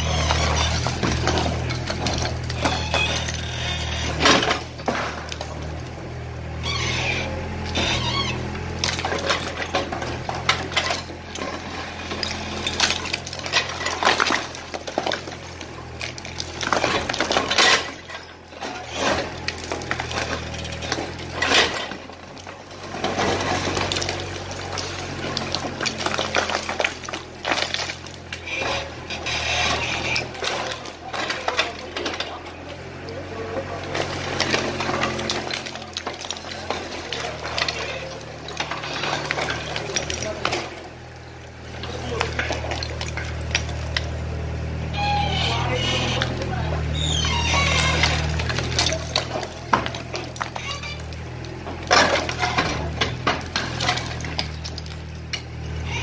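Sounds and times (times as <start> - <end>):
excavator engine humming: 0.0 - 56.0
rubble crashing down: 0.0 - 56.0.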